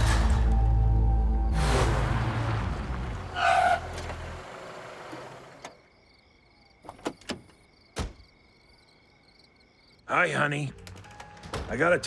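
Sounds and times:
crash: 0:00.0 - 0:00.6
crickets chirping: 0:03.4 - 0:11.4.

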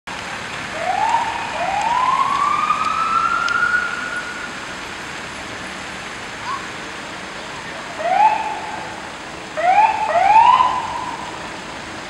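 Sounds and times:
fire engine siren wailing: 0:00.6 - 0:04.8, 0:07.6 - 0:11.8.

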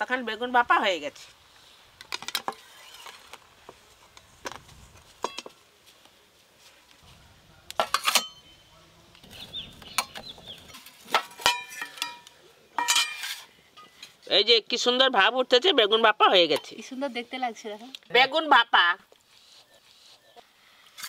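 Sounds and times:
metal lids clinking on pot: 0:07.8 - 0:08.5, 0:10.0 - 0:14.2.

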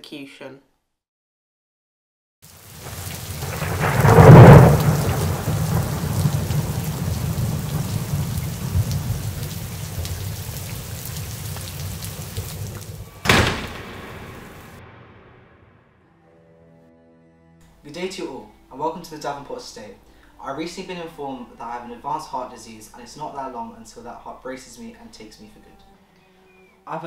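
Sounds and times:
steady rain: 0:02.4 - 0:14.8
rolling thunder: 0:02.6 - 0:16.0
sharp thunderclap: 0:02.7 - 0:16.0.

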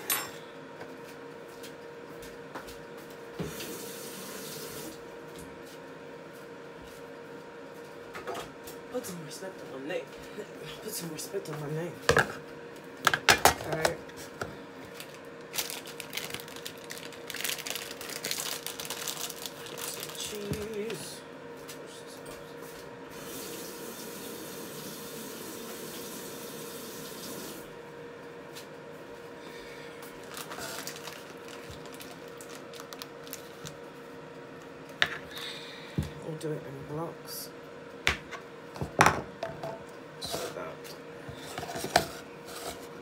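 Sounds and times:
utensils and dishes clinking: 0:00.0 - 0:00.4
steady hum: 0:00.0 - 0:43.0
kitchen tap running: 0:03.5 - 0:05.0, 0:23.1 - 0:27.7.

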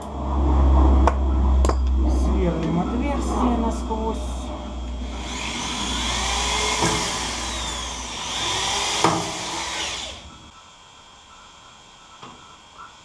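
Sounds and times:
electric drill boring metal: 0:03.2 - 0:10.5
drill bit knocks: 0:05.2 - 0:10.2.

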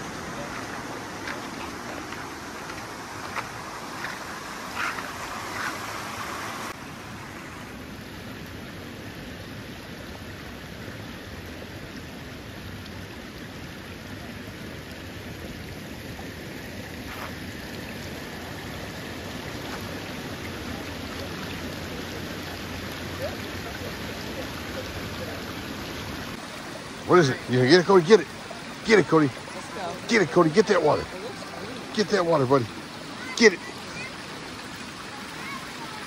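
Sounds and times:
small waves washing onto shore: 0:00.0 - 0:08.2, 0:16.1 - 0:36.0.

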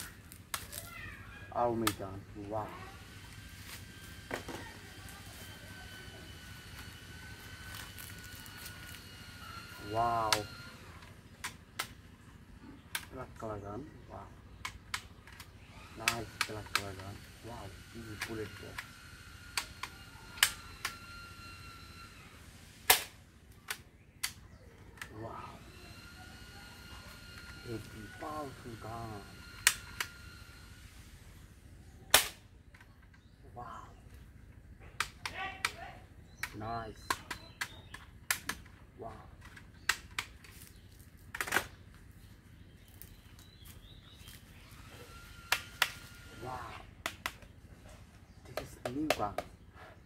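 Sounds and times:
toy pistol snaps: 0:22.9 - 0:24.4, 0:32.1 - 0:32.4.

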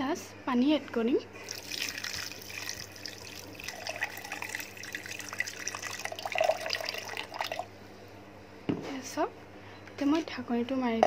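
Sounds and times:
water pouring into metal jar: 0:01.4 - 0:07.7.

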